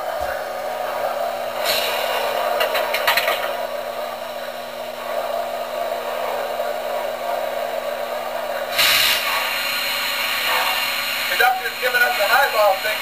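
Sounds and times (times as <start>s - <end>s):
steam hiss: 1.5s - 3.2s, 8.6s - 13.0s.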